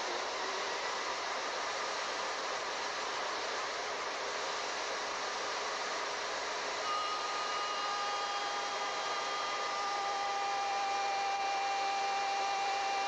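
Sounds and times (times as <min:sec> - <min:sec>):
wood router motor running: 0:06.6 - 0:13.0
high whine: 0:06.8 - 0:13.0.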